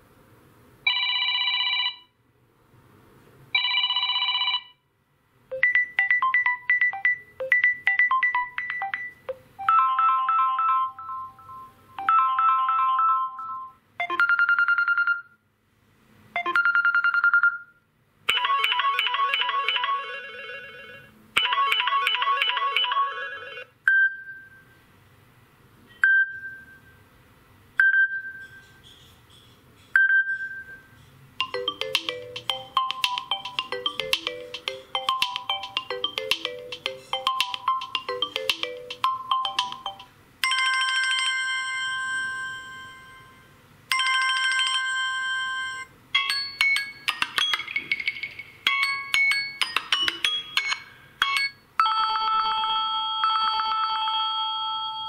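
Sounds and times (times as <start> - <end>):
phone ringing trill: 0.9 - 2.2, 3.6 - 4.8, 5.5 - 15.4, 16.4 - 17.7, 18.3 - 24.6, 31.4 - 55.0
melodic chiming note patterns: 31.4 - 40.1.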